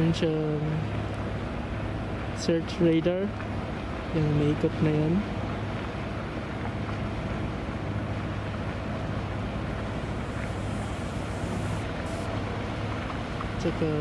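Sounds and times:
steady low hum: 0:08.2 - 0:12.7.

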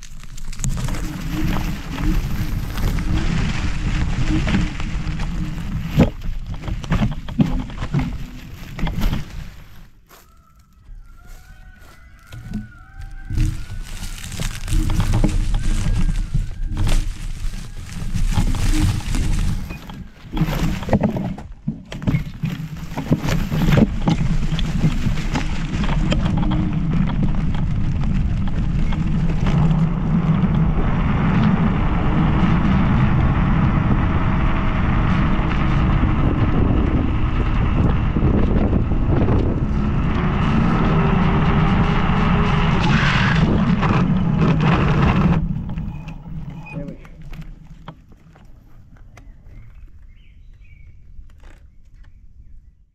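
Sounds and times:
wind buffeting microphone: 0:11.4 - 0:21.4, 0:22.9 - 0:52.8
steady motor drone: 0:23.6 - 0:47.5.

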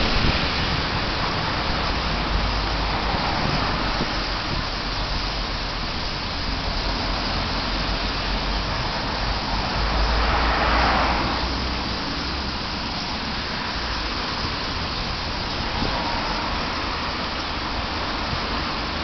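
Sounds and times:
street traffic noise: 0:00.0 - 0:19.0
vehicle passing: 0:06.8 - 0:19.0.

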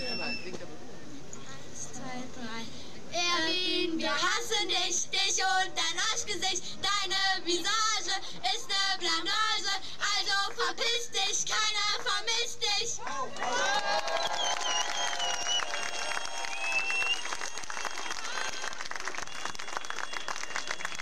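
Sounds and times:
girls singing into a microphone: 0:03.2 - 0:13.0.

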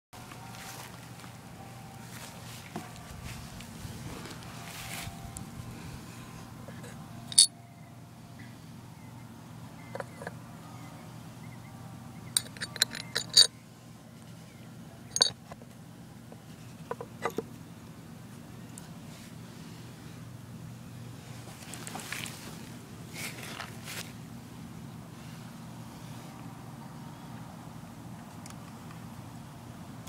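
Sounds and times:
small metal parts clicking and clinking: 0:07.3 - 0:07.5, 0:12.3 - 0:13.5, 0:15.1 - 0:15.4.

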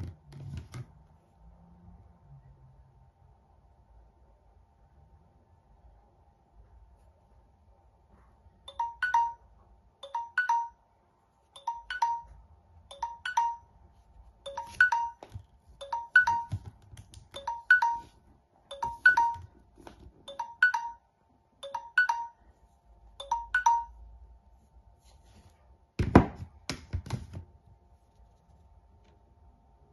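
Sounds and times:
phone timer two-note chime: 0:08.7 - 0:09.4, 0:10.0 - 0:10.8, 0:11.6 - 0:13.7, 0:14.5 - 0:16.6, 0:17.4 - 0:19.5, 0:20.3 - 0:22.5, 0:23.2 - 0:24.0.

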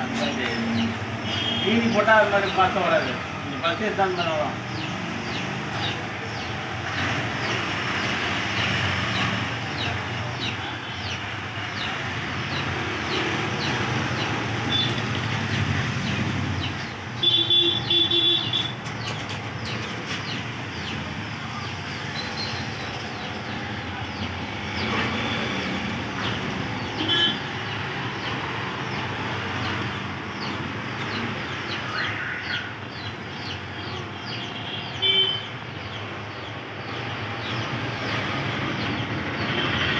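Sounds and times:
birds chirping: 0:00.0 - 0:39.9
traffic noise: 0:00.0 - 0:39.9
vehicle horn toots: 0:01.3 - 0:01.9, 0:17.2 - 0:18.7, 0:27.0 - 0:27.5.

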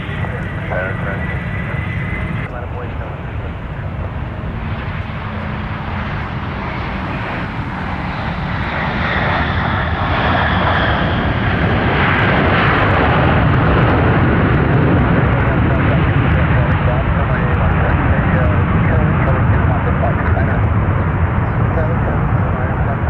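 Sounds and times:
jet engines running: 0:00.0 - 0:23.0.

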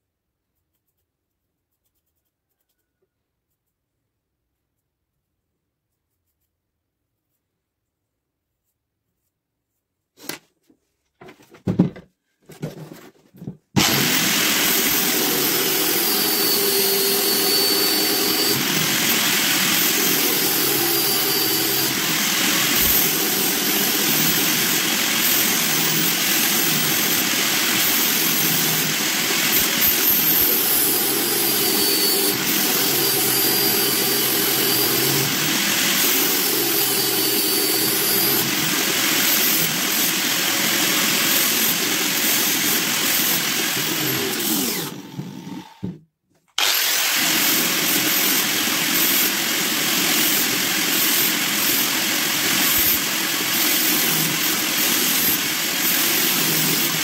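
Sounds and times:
angle grinder whining: 0:13.8 - 0:46.0, 0:46.6 - 0:57.0.

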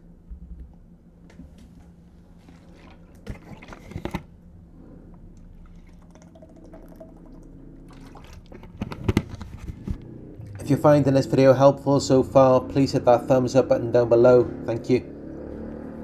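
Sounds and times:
man drinking water: 0:02.2 - 0:08.9.

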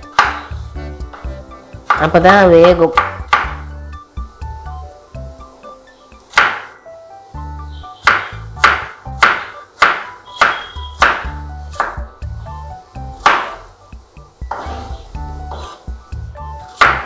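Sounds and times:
background music: 0:00.0 - 0:17.0
knife chopping on wooden board: 0:00.1 - 0:01.2, 0:01.8 - 0:03.7, 0:06.3 - 0:06.8, 0:08.0 - 0:12.1, 0:13.2 - 0:13.6, 0:14.5 - 0:14.8, 0:15.5 - 0:15.8, 0:16.7 - 0:17.0.

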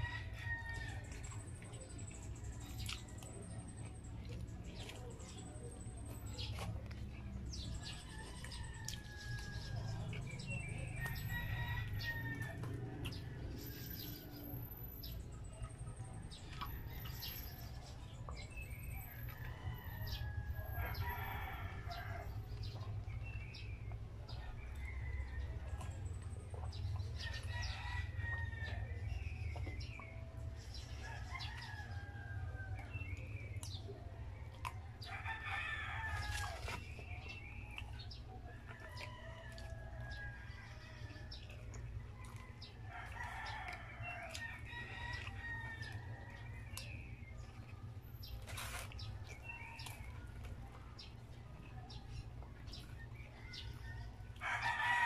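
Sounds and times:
chewing: 0:00.0 - 0:55.0.

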